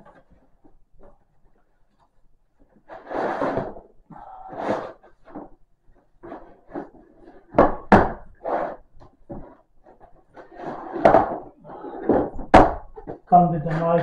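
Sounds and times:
plastic case scraping on cardboard: 0:02.8 - 0:03.9, 0:08.3 - 0:12.4.

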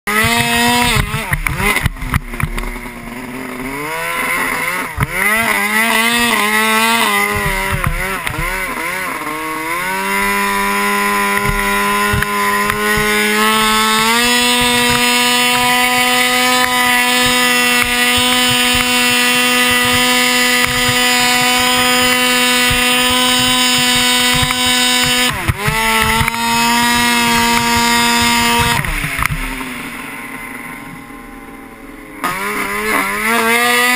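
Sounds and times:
snowmobile engine revving: 0:00.1 - 0:33.9.

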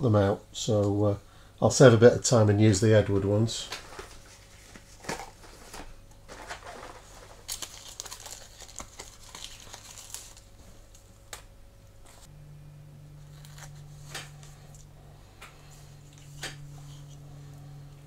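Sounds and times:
low steady hum: 0:00.0 - 0:18.0
plastic packet crinkling: 0:03.8 - 0:11.1.

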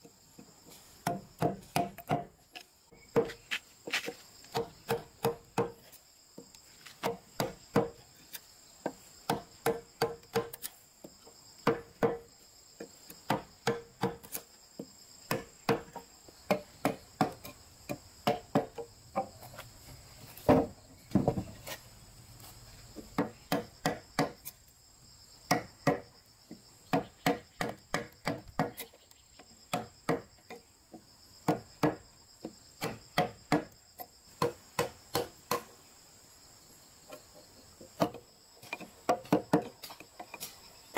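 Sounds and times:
insects droning: 0:00.0 - 0:40.9
mallet striking chisel into wood: 0:01.0 - 0:02.3, 0:04.5 - 0:05.8, 0:13.3 - 0:14.2, 0:23.2 - 0:24.4, 0:26.9 - 0:28.7.

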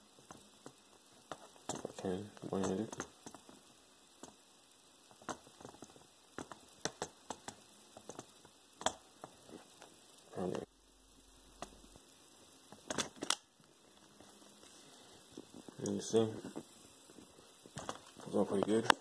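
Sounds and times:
tablet and keyboard clicks: 0:00.2 - 0:04.4, 0:05.1 - 0:10.0, 0:12.7 - 0:13.5, 0:17.7 - 0:19.0.

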